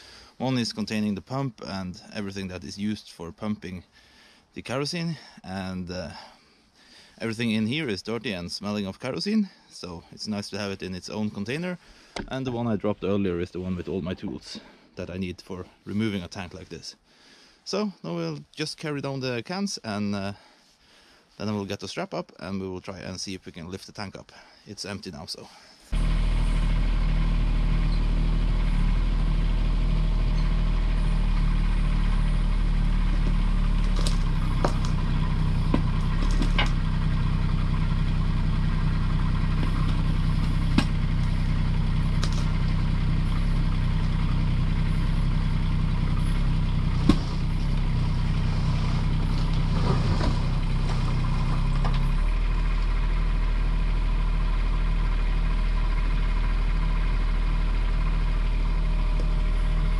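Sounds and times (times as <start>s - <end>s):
excavator diesel engine running: 25.9s - 59.9s
metal clanks and knocks: 35.7s - 36.8s.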